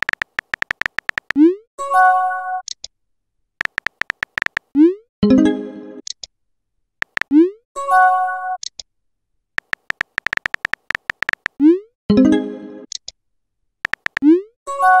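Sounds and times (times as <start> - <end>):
keyboard tap clicks: 0.0 - 1.4, 3.6 - 4.7, 7.0 - 7.3, 9.6 - 11.6, 13.8 - 14.3.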